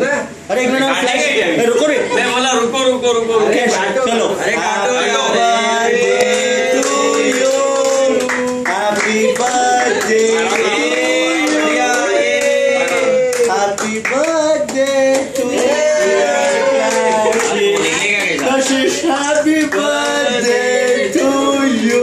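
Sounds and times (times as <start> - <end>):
group of people singing: 4.4 - 22.0
hand-clapping: 6.2 - 15.8, 16.8 - 20.3.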